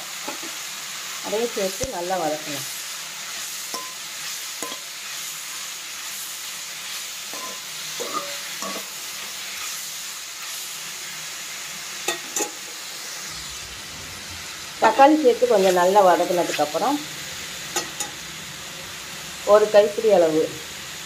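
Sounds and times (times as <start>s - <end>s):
vegetables sizzling in oil: 0.0s - 21.0s
metal ladle scraping a pan: 3.2s - 5.4s, 6.9s - 9.8s.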